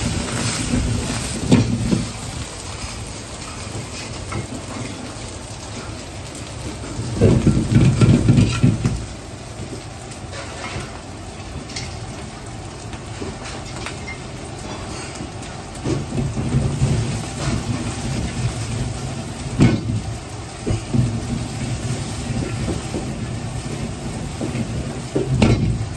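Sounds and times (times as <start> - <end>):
gas burner rumble: 0.0 - 25.9
noodles sizzling in oil: 0.0 - 25.9
ladle and wok clanking: 10.3 - 11.0, 13.2 - 25.9.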